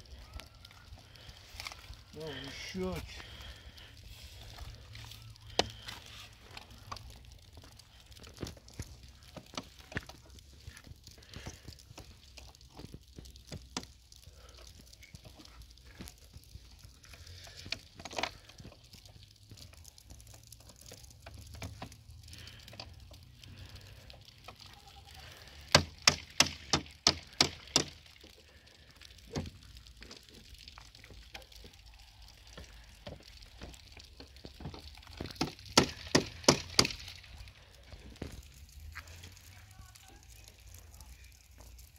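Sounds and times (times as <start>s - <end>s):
hail pellets ticking: 0.0s - 41.9s.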